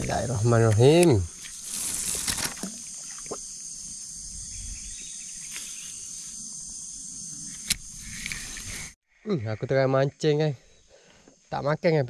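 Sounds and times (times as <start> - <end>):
high-pitched insect chorus: 0.0 - 12.0
sharp click: 7.5 - 8.5.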